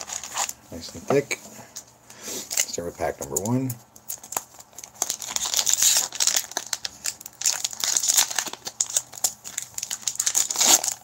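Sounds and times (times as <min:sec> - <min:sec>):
foil pack tearing and crinkling: 0:00.0 - 0:00.6, 0:04.1 - 0:11.0.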